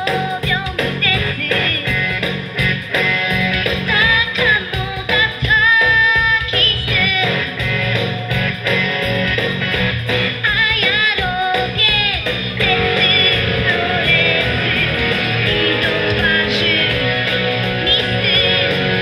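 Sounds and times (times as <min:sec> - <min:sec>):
girl singing into microphone: 0:00.0 - 0:02.0, 0:03.9 - 0:07.6, 0:10.4 - 0:19.0
backing track with guitar: 0:00.0 - 0:19.0.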